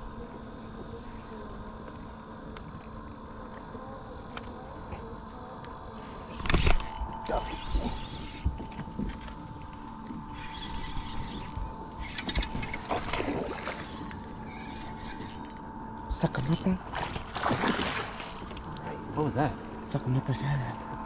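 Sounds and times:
faint high hum: 0.0s - 21.0s
fish splashing at surface: 16.9s - 18.6s.

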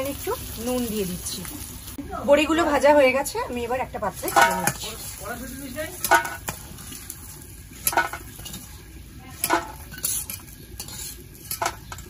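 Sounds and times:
metal spatula scraping steel pan: 4.1s - 5.2s, 6.0s - 12.0s.

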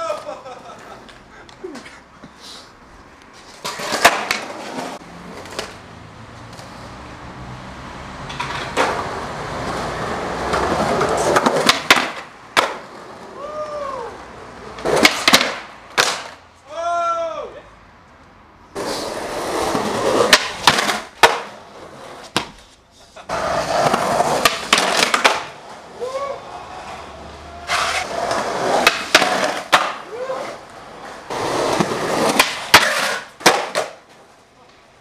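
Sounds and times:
skateboard wheels rolling on pavement: 0.0s - 17.3s, 18.0s - 35.0s
skateboard clacking on ground: 3.2s - 5.8s, 8.2s - 9.8s, 10.4s - 13.8s, 14.8s - 16.4s, 18.8s - 35.0s.

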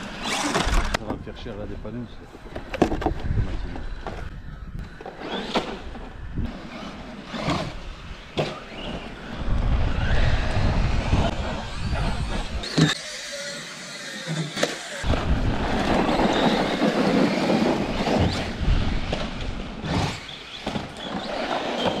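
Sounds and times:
wind on microphone: 2.8s - 13.0s, 15.0s - 20.2s
electric motor whine: 5.1s - 22.0s
toy trucks clattering on ground: 15.7s - 19.1s.

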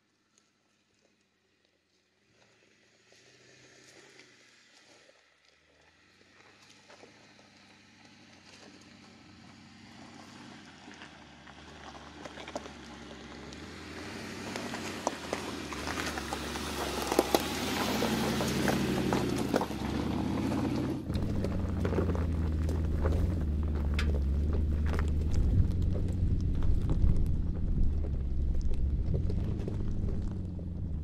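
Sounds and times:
suv engine: 2.4s - 31.0s
tyres crunching over stones: 5.7s - 31.0s.

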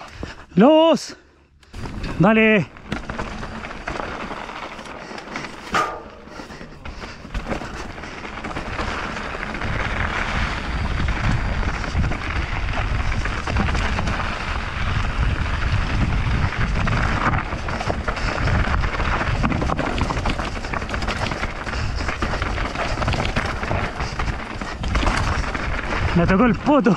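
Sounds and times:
bike rattling over rough ground: 1.7s - 26.9s
wind rushing over microphone: 8.6s - 26.7s.

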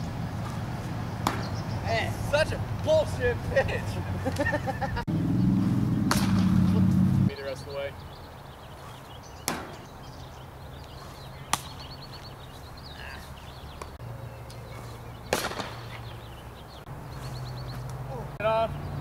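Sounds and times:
steady low hum: 0.0s - 7.3s
sharp ball knocks: 1.2s - 1.6s, 6.0s - 6.8s, 9.4s - 9.8s, 15.3s - 15.9s.

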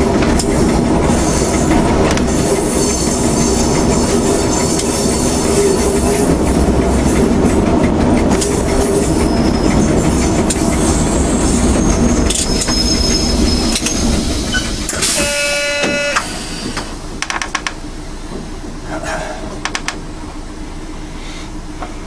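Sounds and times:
train rumble: 0.0s - 22.0s
wheels squealing on rails: 0.4s - 7.2s, 8.3s - 17.0s.

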